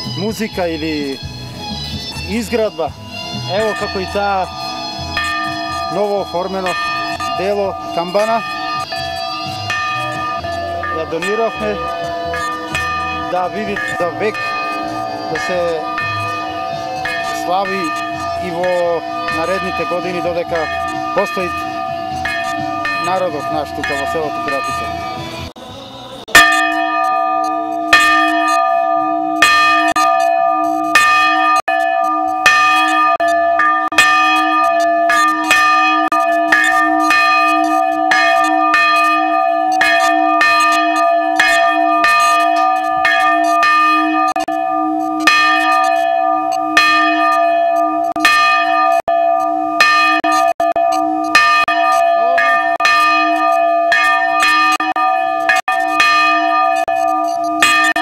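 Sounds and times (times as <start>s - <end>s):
church bell ringing: 0.0s - 1.3s, 2.1s - 25.5s, 26.3s - 58.0s.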